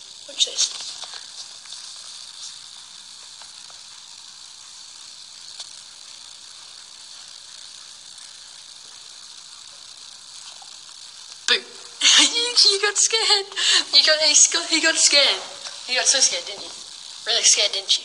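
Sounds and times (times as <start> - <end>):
microphone background hiss: 0.0 - 18.0.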